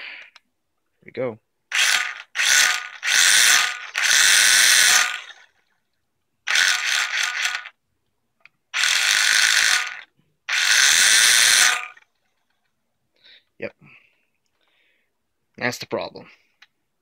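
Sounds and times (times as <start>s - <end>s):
toy truck motor throttle bursts: 1.7s - 5.7s, 6.5s - 7.8s, 8.7s - 12.1s.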